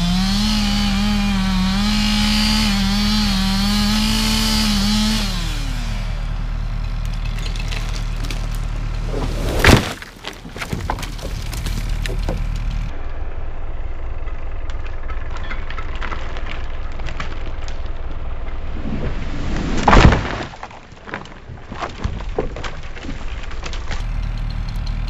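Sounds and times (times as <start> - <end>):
tree cracking and splintering: 0.0 - 12.9, 14.2 - 25.0
tree crashing to the ground: 6.4 - 12.9, 14.9 - 24.5
small cracks of wood: 6.8 - 12.9, 14.3 - 18.6, 19.8 - 25.0.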